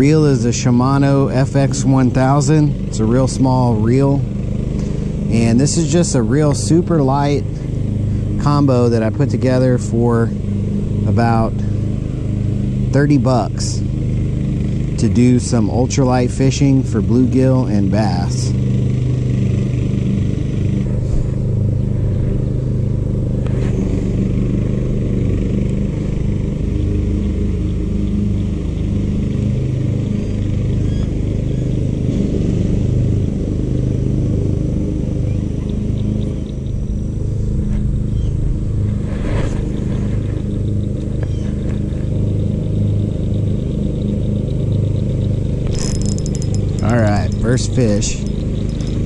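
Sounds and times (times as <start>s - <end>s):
low engine hum: 0.0s - 49.0s.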